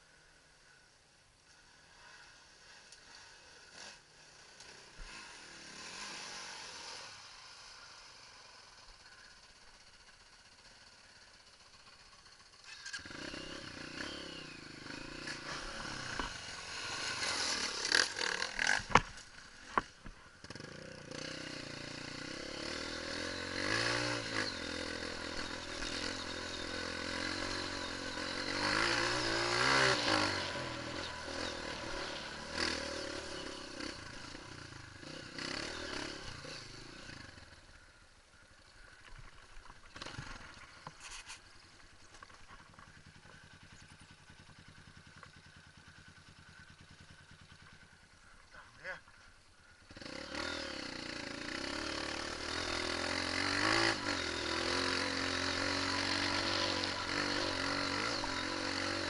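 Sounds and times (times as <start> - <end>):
dirt bike engine revving: 1.8 - 37.8, 39.8 - 41.6, 49.6 - 59.0.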